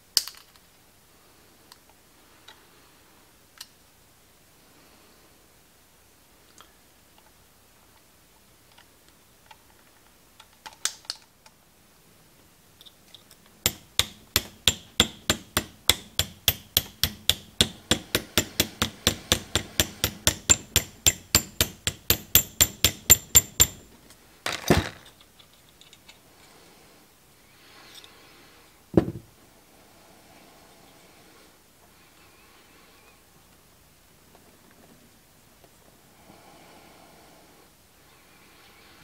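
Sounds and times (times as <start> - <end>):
hammer tapping metal punch: 13.7 - 23.9.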